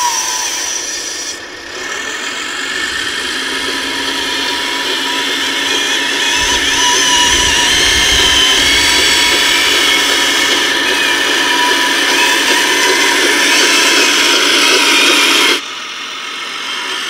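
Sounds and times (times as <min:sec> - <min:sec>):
electric motor whine: 0:00.0 - 0:17.0
low rumble: 0:06.4 - 0:10.7.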